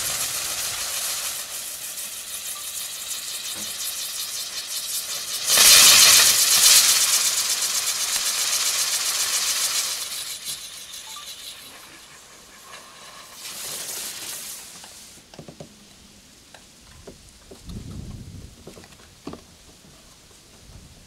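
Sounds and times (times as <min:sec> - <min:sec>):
firework hissing: 0:00.0 - 0:15.3.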